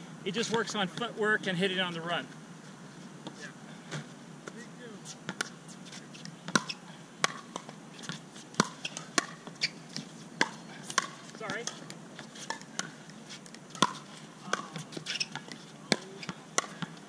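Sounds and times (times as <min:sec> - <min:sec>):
shoe squeak: 0:08.0 - 0:10.7, 0:14.7 - 0:16.3.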